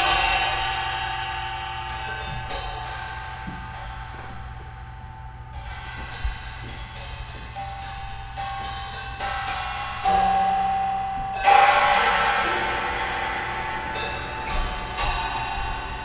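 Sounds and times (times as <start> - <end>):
cymbal ringing: 0.0 - 16.0.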